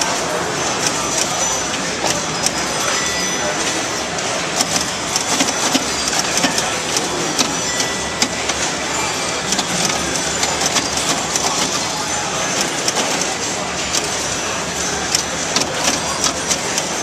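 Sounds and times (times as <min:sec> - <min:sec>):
din of pinball machines: 0:00.0 - 0:17.0
pinball machine clicks and clacks: 0:00.0 - 0:17.0.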